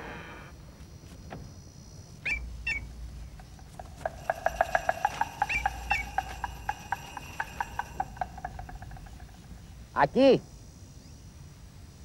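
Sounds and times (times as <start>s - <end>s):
sharply falling chirps: 2.3s - 9.9s
clicking pitched notes: 2.5s - 9.8s.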